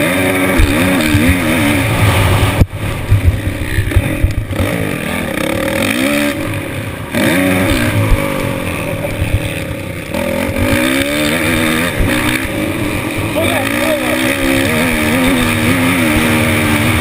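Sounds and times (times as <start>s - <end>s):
dirt bike engine revving: 0.0s - 17.0s
wind buffeting: 0.6s - 5.6s.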